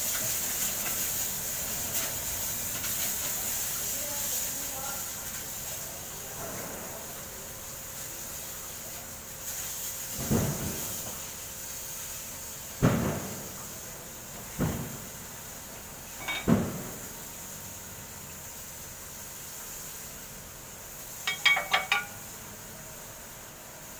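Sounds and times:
steady background hiss: 0:00.0 - 0:23.9.

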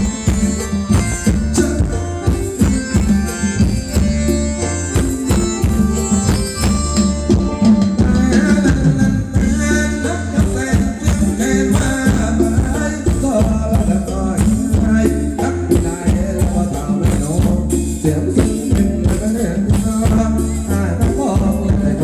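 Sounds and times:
band playing through loudspeakers: 0:00.0 - 0:22.0
steady drum beat: 0:00.0 - 0:22.0
person singing: 0:07.5 - 0:22.0.

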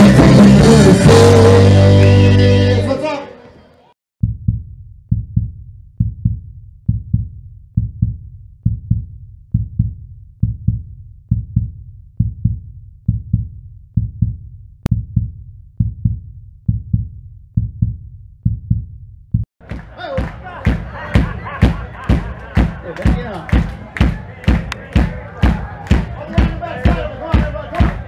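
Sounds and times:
heartbeat double thump: 0:04.2 - 0:19.5.

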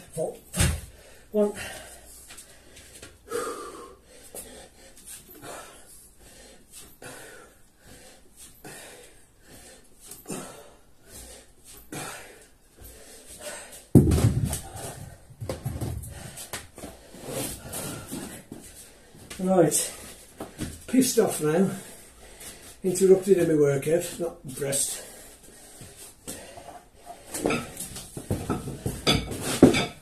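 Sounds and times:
man breathing hard in gasps: 0:00.8 - 0:13.9.

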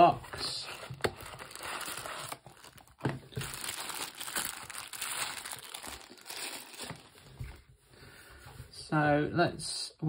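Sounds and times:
plastic wrapper crinkling: 0:00.9 - 0:07.3.

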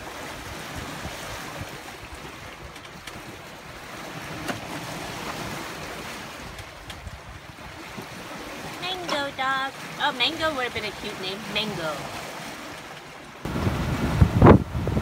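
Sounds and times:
rushing wind: 0:00.0 - 0:09.0, 0:12.0 - 0:15.0
wind buffeting microphone: 0:00.0 - 0:09.0, 0:13.4 - 0:15.0
sea waves: 0:00.0 - 0:15.0.

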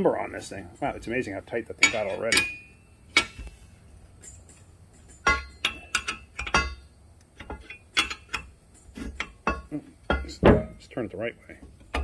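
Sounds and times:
metallic clinks and taps: 0:01.8 - 0:10.8.

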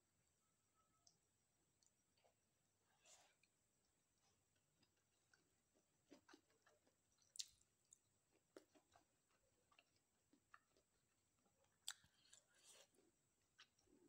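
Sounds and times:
chewing with wet mouth clicks: 0:06.1 - 0:10.9, 0:11.8 - 0:12.8.

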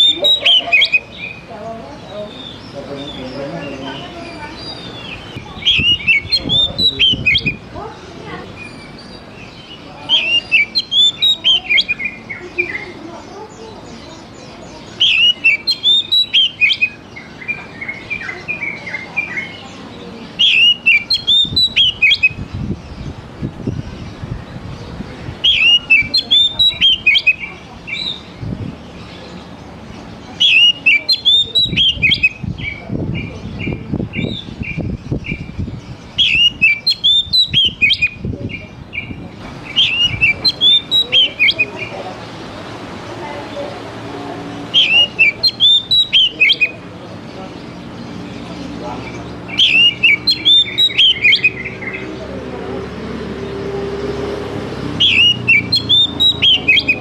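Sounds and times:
bird singing whistled notes: 0:00.0 - 0:07.7, 0:08.6 - 0:19.8, 0:20.4 - 0:24.6, 0:25.4 - 0:28.3, 0:30.3 - 0:42.0, 0:44.7 - 0:46.8, 0:49.0 - 0:52.2, 0:54.9 - 0:57.0.

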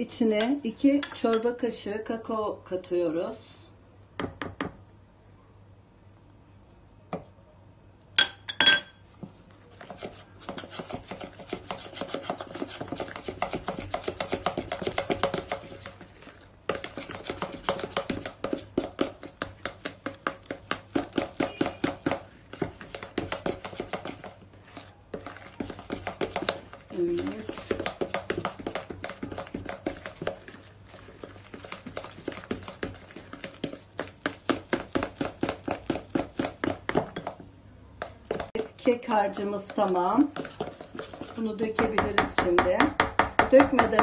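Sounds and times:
batter scraping and slapping: 0:09.2 - 0:37.4, 0:38.0 - 0:44.0.

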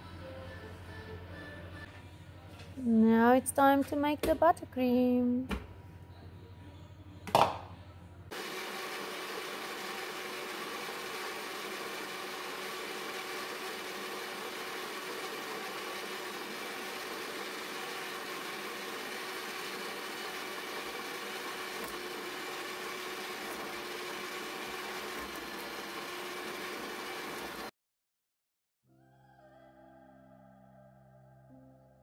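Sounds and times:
electric stand mixer running: 0:08.3 - 0:27.7.

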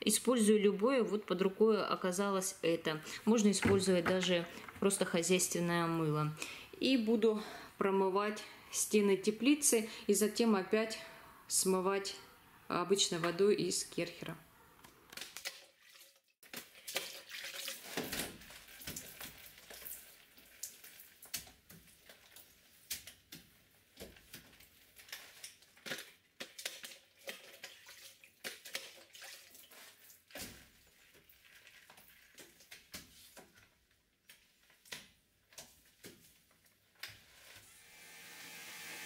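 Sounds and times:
mop swishing on wet glass: 0:26.4 - 0:36.6.

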